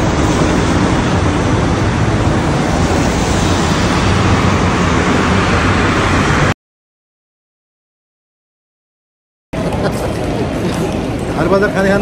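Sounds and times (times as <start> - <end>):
wind buffeting microphone: 0.0 - 6.5
street traffic rushing: 0.0 - 6.6, 9.6 - 12.0.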